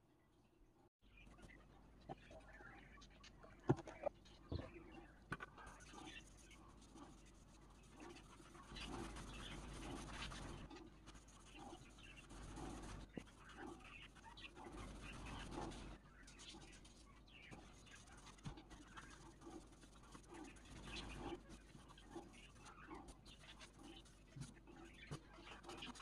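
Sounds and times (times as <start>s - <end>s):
paper towel rubbing on wood: 5.6s - 26.0s.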